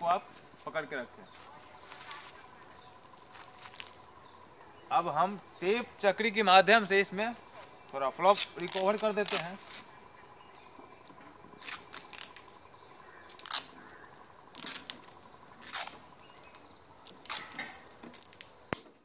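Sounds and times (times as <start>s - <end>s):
insects chirping: 0.0s - 19.0s
tape ripping off roll: 13.3s - 13.7s, 14.5s - 19.0s.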